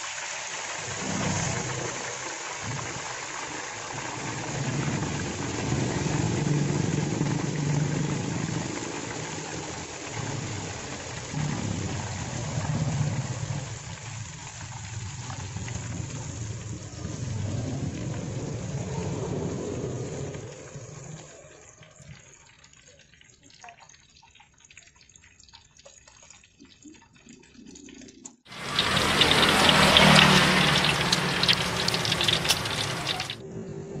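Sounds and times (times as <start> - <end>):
oil sizzling in a wok: 0.0 - 19.2, 28.5 - 33.4
loud crackling hiss: 28.5 - 33.4.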